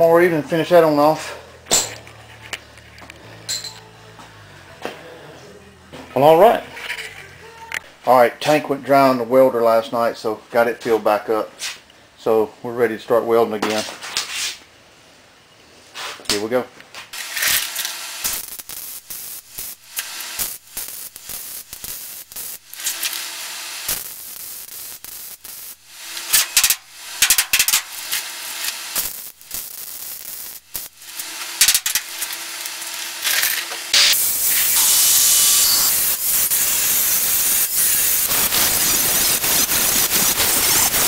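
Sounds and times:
welding arc crackling: 0:17.1 - 0:41.0.

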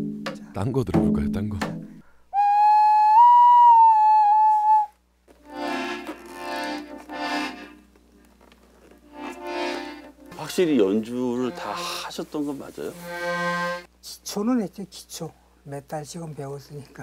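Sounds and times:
whistle-like wind instrument note: 0:02.3 - 0:05.0
accordion chords: 0:05.3 - 0:08.0, 0:09.0 - 0:13.9.

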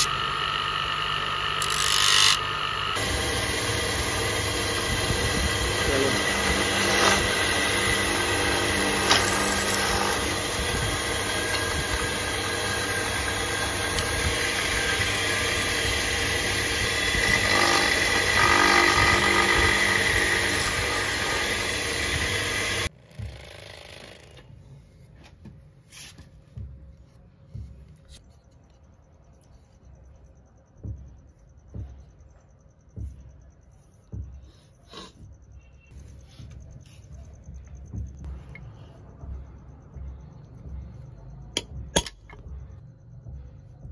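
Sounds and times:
drill press boring wood: 0:00.0 - 0:24.4.

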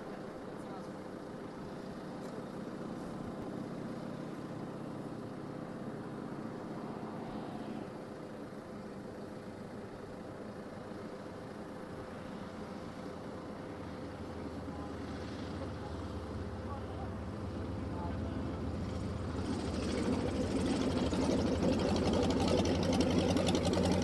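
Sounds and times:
engine droning: 0:00.0 - 0:24.0.

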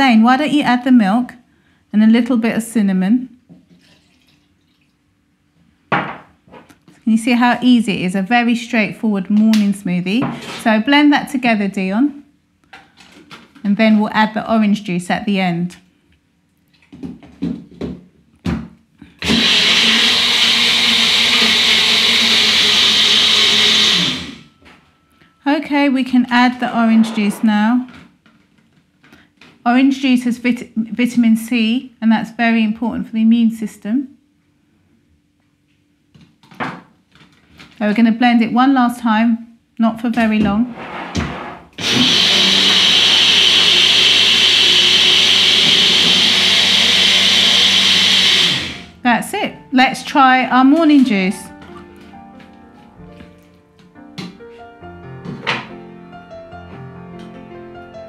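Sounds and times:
blender motor running: 0:19.2 - 0:24.5, 0:41.8 - 0:48.9.

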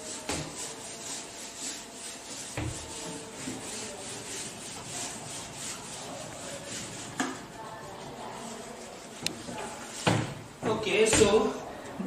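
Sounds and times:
duster rubbing on whiteboard: 0:00.0 - 0:10.6.

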